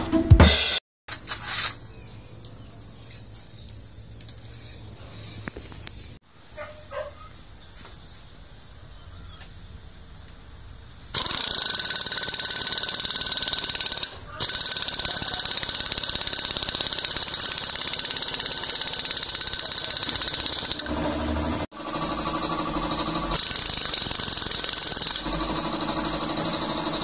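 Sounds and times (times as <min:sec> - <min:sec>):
pneumatic impact wrench hammering: 0:11.2 - 0:21.5, 0:22.4 - 0:27.0.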